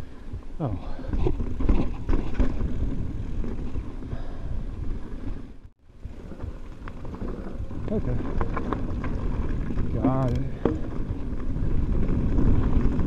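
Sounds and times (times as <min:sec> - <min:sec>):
bike tyres rumbling on dirt trail: 0:00.0 - 0:13.0
bike rattling and knocking: 0:00.7 - 0:04.0, 0:06.0 - 0:13.0
wind on microphone: 0:06.0 - 0:13.0.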